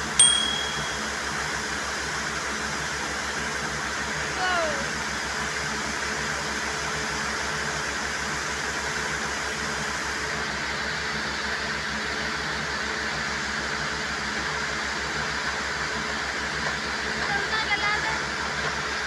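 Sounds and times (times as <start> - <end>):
air compressor engine drone: 0.0 - 19.0.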